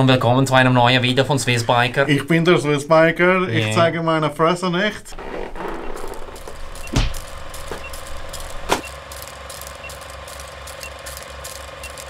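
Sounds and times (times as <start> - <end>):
film projector clatter: 5.8 - 12.0
sharp knocks: 6.8 - 7.9.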